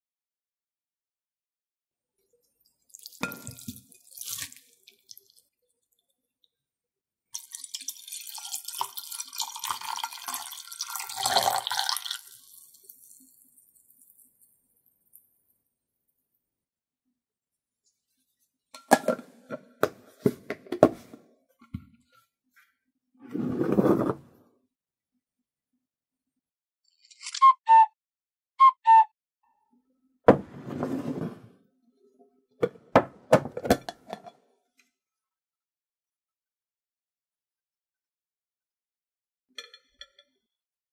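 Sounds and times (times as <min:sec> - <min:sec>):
liquid pouring and splashing: 0:02.6 - 0:06.0, 0:07.4 - 0:15.2
knock and scrape on wooden table: 0:18.9 - 0:21.9, 0:23.3 - 0:24.3, 0:30.3 - 0:31.6, 0:32.6 - 0:34.3.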